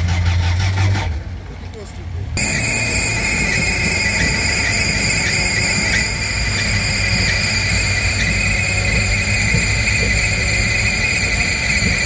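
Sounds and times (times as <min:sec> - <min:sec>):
car engine rumbling: 0:00.0 - 0:12.0
high-pitched whine: 0:02.4 - 0:12.0.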